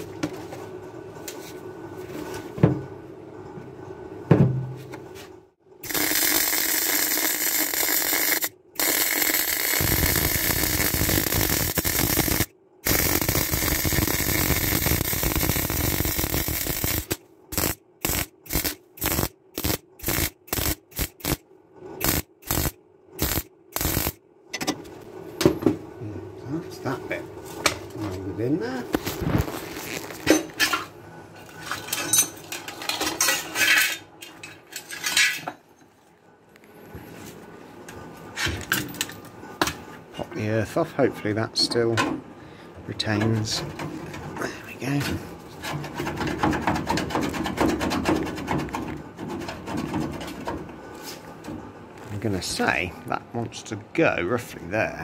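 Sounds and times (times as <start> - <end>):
welder arc crackling: 5.8 - 21.4, 22.0 - 24.2, 28.9 - 30.3.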